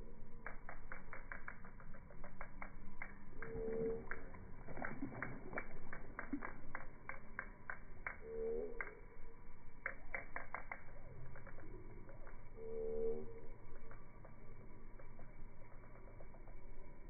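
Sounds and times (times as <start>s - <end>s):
frogs clicking: 0.2s - 17.0s
short pitched frog call: 3.4s - 14.0s.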